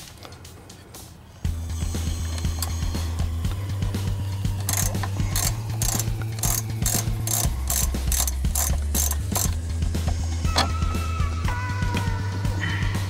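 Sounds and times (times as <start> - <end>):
steady low hum: 0.0 - 13.0
ratchet clicking: 1.5 - 10.8.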